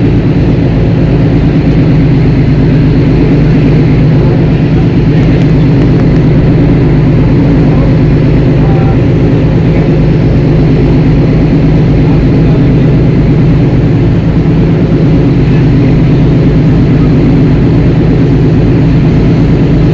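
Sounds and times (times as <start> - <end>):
boat engine running: 0.0 - 19.9.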